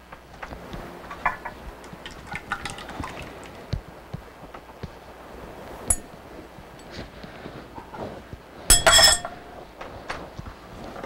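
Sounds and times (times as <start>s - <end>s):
liquid pouring into dish: 1.2s - 3.6s
clinks against glass dish: 5.9s - 6.2s, 8.7s - 9.6s.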